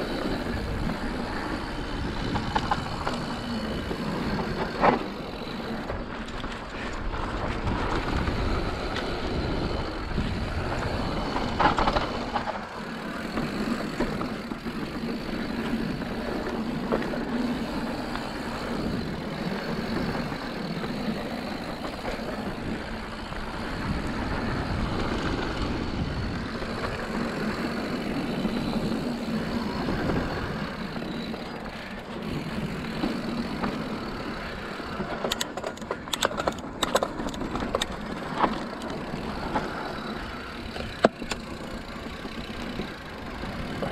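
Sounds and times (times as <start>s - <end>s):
bike tyres rolling on dirt: 0.0s - 43.9s.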